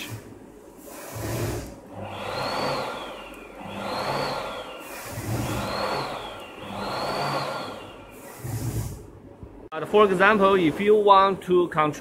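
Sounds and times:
spark machines hissing: 0.0 - 9.1
rising and falling whistle: 2.2 - 8.4.

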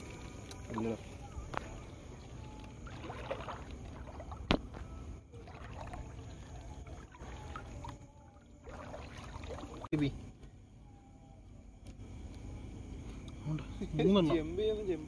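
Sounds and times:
water sloshing and lapping: 0.0 - 10.2.

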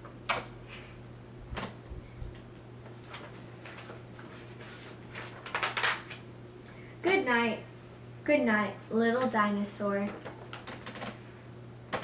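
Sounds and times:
book pages rustling: 2.8 - 5.8.

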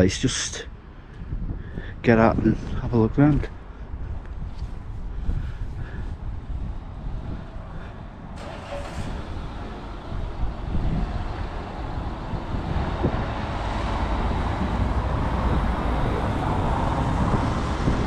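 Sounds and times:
cars driving on wet cobbles: 8.4 - 18.0.

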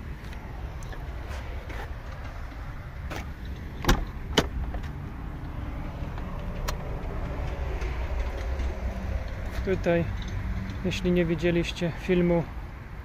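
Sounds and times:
low steady rumble: 0.0 - 12.2
car door latch clicking: 3.1 - 5.0.

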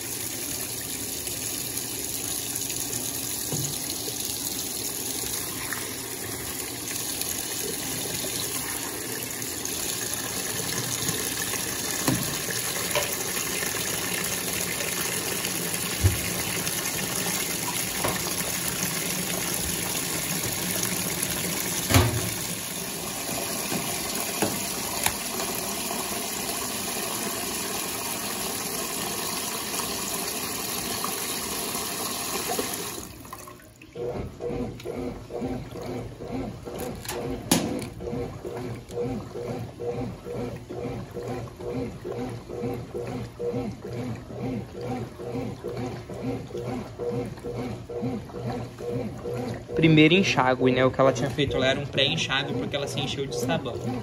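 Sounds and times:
washing machine filling with water: 0.0 - 54.0.

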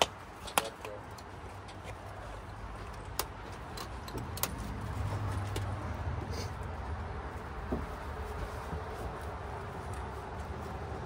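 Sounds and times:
harness buckles clicking and jingling: 0.4 - 5.7.

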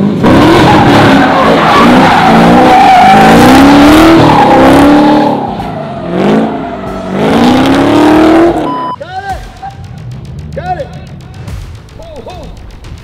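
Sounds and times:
car engine revving hard: 0.0 - 8.7
tyres screeching on asphalt: 0.1 - 8.7.

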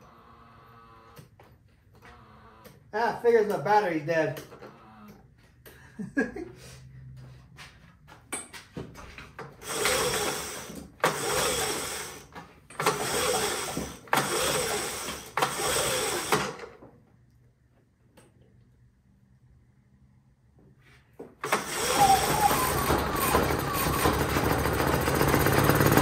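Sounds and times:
generator recoil starter pulls: 9.5 - 16.8, 21.4 - 26.0
engine turning over: 9.6 - 16.7, 21.4 - 26.0.

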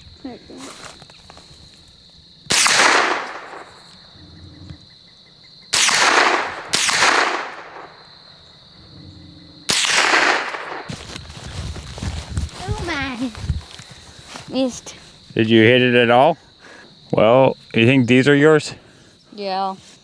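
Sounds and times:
rifle shots echoing: 2.5 - 3.8, 5.7 - 8.0, 9.7 - 10.9.

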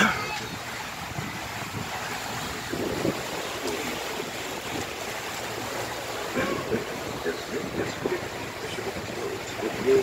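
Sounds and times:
wind noise: 0.0 - 5.0
water rushing: 0.0 - 10.0.

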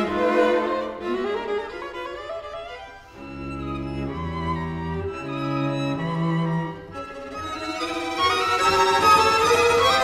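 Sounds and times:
orchestral music with violins: 0.0 - 10.0.

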